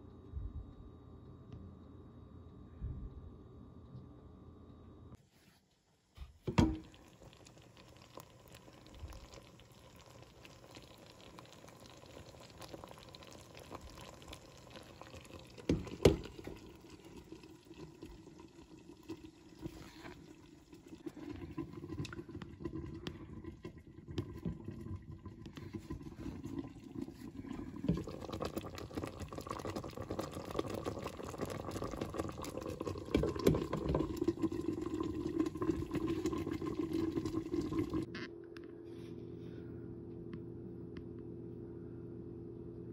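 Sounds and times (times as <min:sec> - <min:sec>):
syrup bubbling in a pot: 0:06.4 - 0:38.1.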